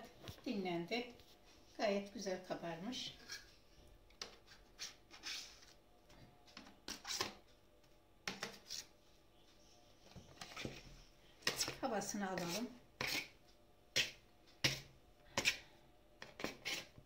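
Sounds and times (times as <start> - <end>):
dough scraper scraping in bowl: 4.5 - 5.8, 8.4 - 8.9, 12.3 - 13.4, 14.0 - 17.0.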